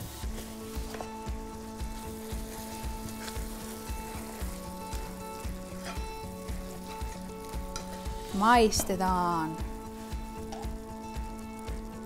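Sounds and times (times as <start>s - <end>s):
spatula stirring in a pan: 0.0s - 9.1s, 9.7s - 11.3s
meat sauce sizzling in a frying pan: 0.0s - 12.0s.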